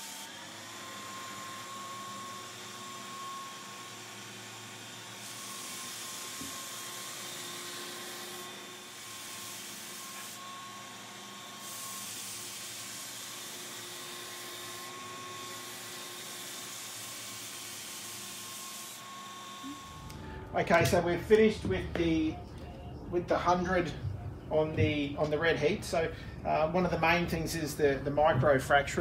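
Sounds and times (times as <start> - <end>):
sanding hiss: 0.0 - 19.0
floor sander motor hum: 0.0 - 22.6.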